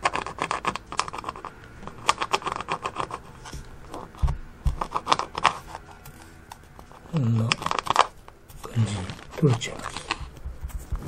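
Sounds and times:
fingernail scratching wooden board: 0.0 - 11.0
dull thumps: 3.5 - 5.2, 9.5 - 11.0.

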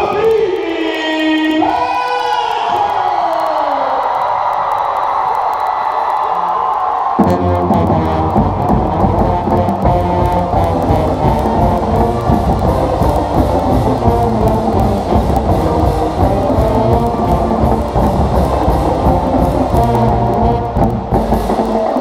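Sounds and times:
steady drumbeat: 7.2 - 22.0
wind instruments holding notes: 7.2 - 22.0.

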